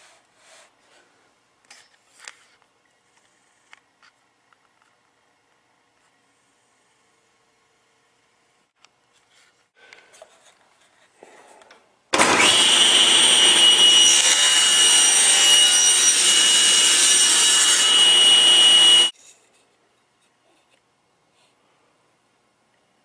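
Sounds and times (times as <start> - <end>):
electric power tool whining: 12.2 - 19.1.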